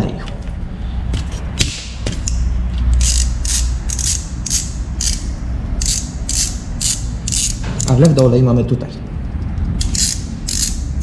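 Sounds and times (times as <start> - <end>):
hand ratchet clicking: 1.2 - 8.0, 9.8 - 11.0.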